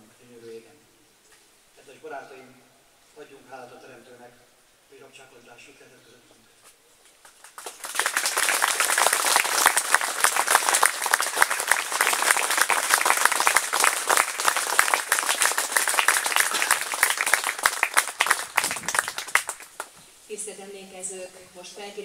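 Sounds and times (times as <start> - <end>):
audience applauding: 7.2 - 19.9.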